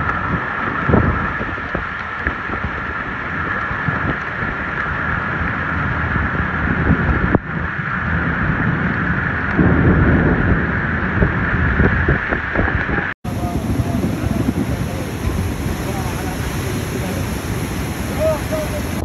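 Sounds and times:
wind buffeting microphone: 0.0 - 19.0
heavy rain hiss: 13.2 - 19.0.

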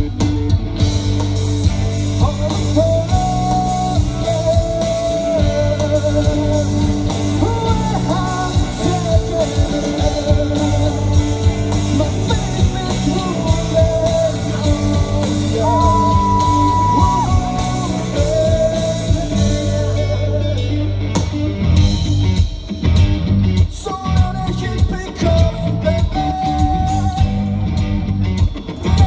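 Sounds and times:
live rock band: 0.0 - 29.0
person singing lead vocal: 2.1 - 21.7, 23.6 - 27.9.

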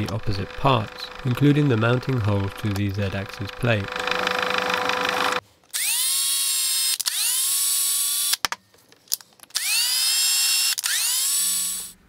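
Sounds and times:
cordless drill whining: 0.0 - 8.4, 9.6 - 12.0.

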